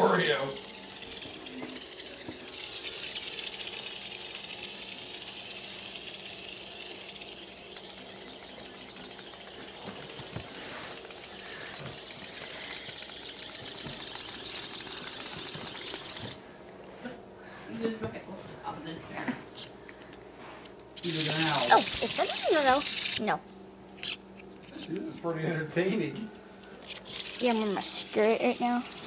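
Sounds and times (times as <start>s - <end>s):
toy vibration motor buzzing: 0.0s - 16.4s, 21.0s - 23.4s, 24.0s - 24.4s, 26.8s - 29.0s.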